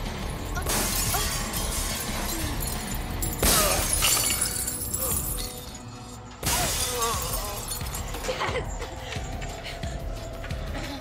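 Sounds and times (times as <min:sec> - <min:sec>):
glass jar shattering: 0:00.5 - 0:08.4
tense orchestral film score: 0:07.6 - 0:11.0.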